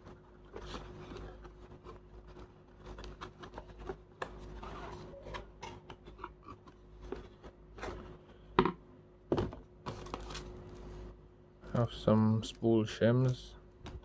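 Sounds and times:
paper rustling: 0:00.0 - 0:08.1.

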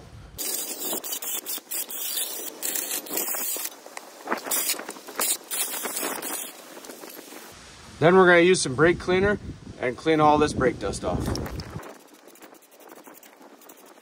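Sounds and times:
wire brush scraping metal: 0:00.4 - 0:07.5, 0:11.4 - 0:14.0.

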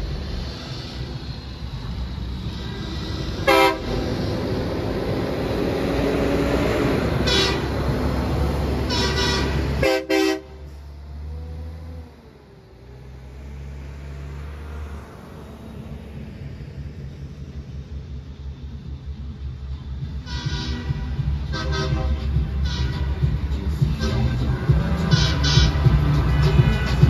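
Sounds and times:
traffic rumble: 0:00.0 - 0:27.0
truck diesel engine: 0:00.0 - 0:27.0
truck horn blasts: 0:03.4 - 0:04.1, 0:07.2 - 0:10.8, 0:20.2 - 0:27.0.

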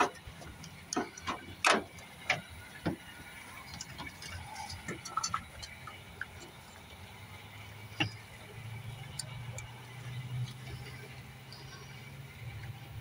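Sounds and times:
clicks and knocks of car parts: 0:00.0 - 0:07.0, 0:07.9 - 0:09.8.

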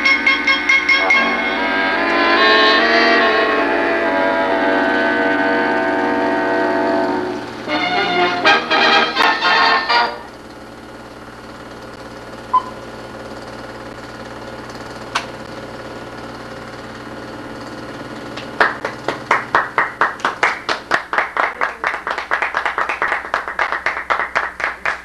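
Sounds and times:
steady low hum: 0:00.0 - 0:21.9
group clapping: 0:18.3 - 0:25.0.

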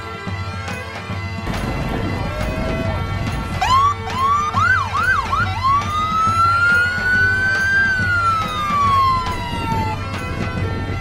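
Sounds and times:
police siren: 0:01.6 - 0:11.0.

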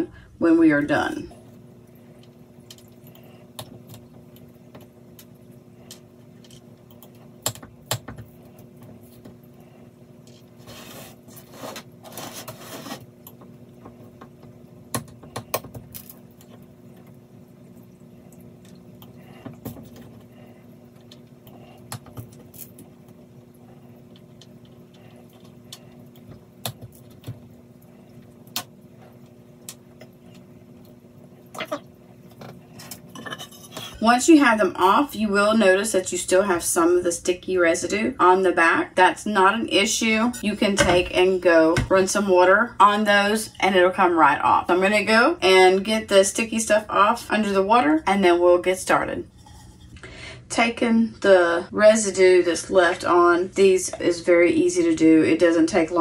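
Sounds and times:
faint steady hum: 0:00.0 - 0:56.0
spatula scraping: 0:10.3 - 0:13.1, 0:32.6 - 0:34.1, 0:49.2 - 0:50.0.

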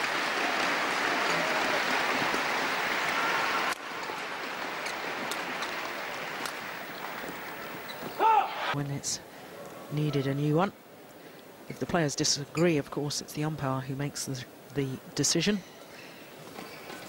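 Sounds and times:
crowd applause and chatter: 0:00.0 - 0:08.8.

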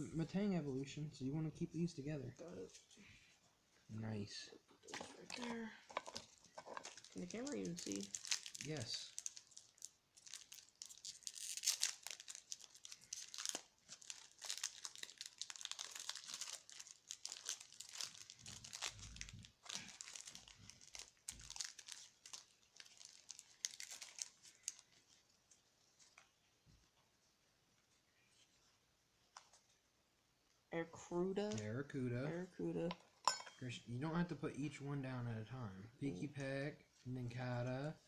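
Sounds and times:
foil wrapper tearing and crinkling: 0:06.0 - 0:25.2.

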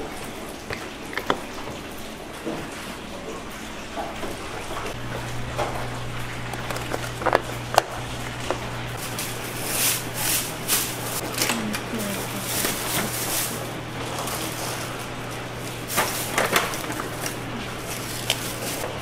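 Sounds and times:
steady low hum: 0:04.2 - 0:19.0
rustling: 0:12.0 - 0:15.0, 0:15.6 - 0:19.0.

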